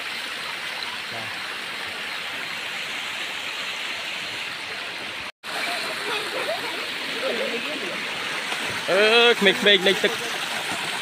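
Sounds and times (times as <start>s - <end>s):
water rushing over rock: 4.0s - 11.0s.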